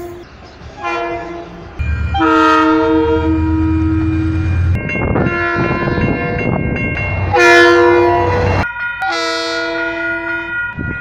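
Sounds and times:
locomotive horn blasts: 0.8s - 6.4s, 7.3s - 10.6s.

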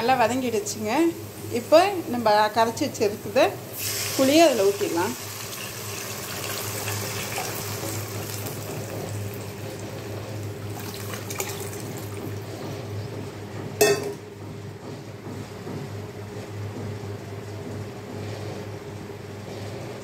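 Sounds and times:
liquid pouring and splashing: 5.2s - 12.5s.

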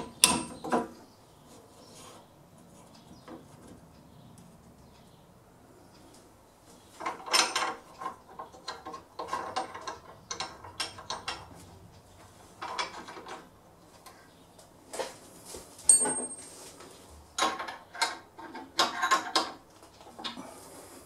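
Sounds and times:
metal clicks and scraping: 7.0s - 14.2s.

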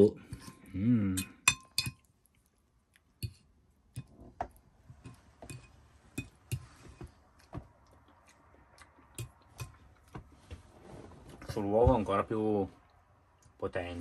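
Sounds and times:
cutlery clinking on a plate: 1.2s - 2.0s, 5.1s - 6.6s.

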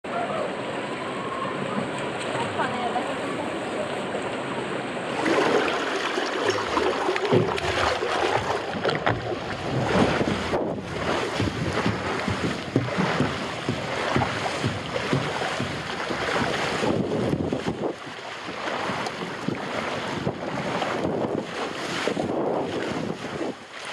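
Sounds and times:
water rushing and spraying: 0.1s - 23.9s
body knocking on slide joints: 6.5s - 18.0s.

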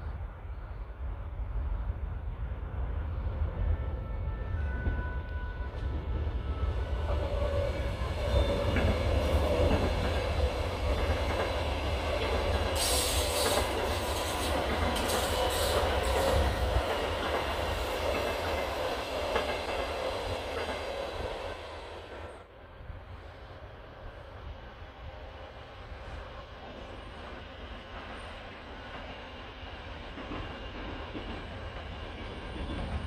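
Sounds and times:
train wheels rumbling on rails: 0.0s - 33.0s
coaches hissing and clattering: 12.2s - 17.5s.

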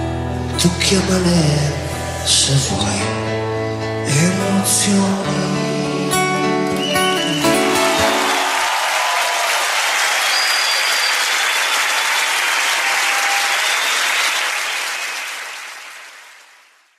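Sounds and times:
audience applauding: 6.6s - 16.9s.

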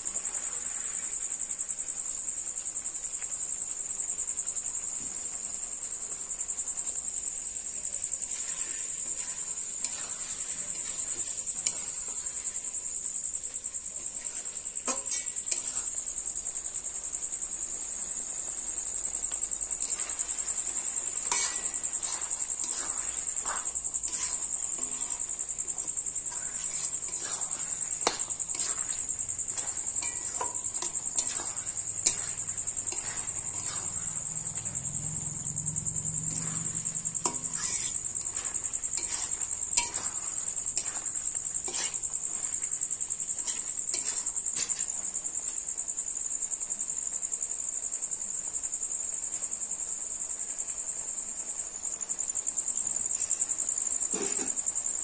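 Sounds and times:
crickets trilling: 0.0s - 55.0s
metal spatula scraping a pan: 7.9s - 16.7s, 18.0s - 45.4s.

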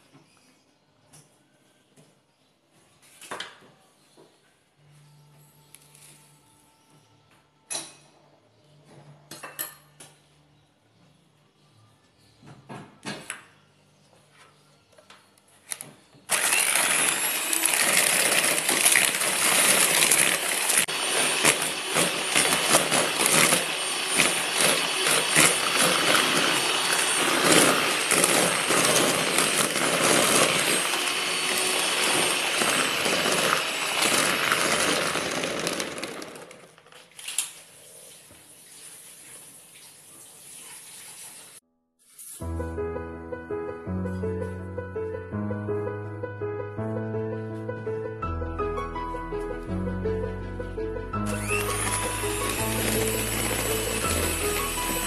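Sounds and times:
electric hand mixer whirring: 16.3s - 36.9s, 51.2s - 55.0s.

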